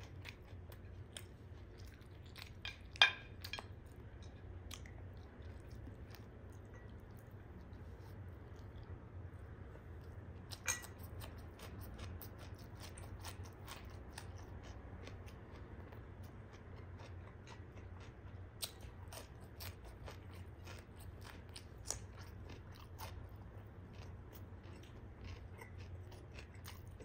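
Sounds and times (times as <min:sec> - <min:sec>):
chewing crisp cucumber: 0:00.0 - 0:27.0.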